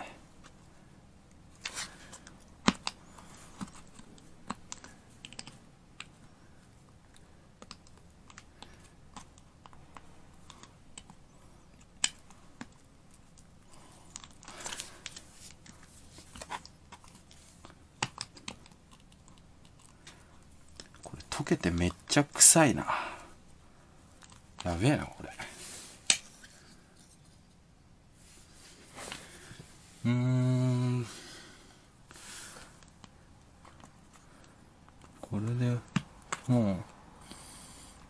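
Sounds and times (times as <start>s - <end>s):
clicks and taps on hard plastic: 33.0s - 36.5s.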